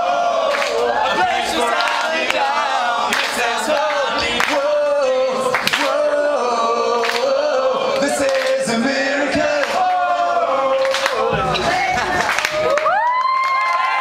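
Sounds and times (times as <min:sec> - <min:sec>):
choir singing long notes: 0:00.0 - 0:12.5.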